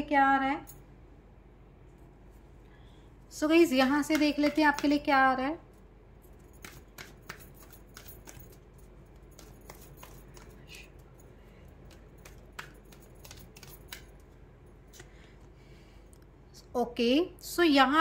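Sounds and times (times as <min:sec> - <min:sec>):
low steady hum: 0:00.0 - 0:18.0
cards clicking and tapping: 0:03.9 - 0:05.1, 0:06.5 - 0:11.2, 0:11.8 - 0:14.4.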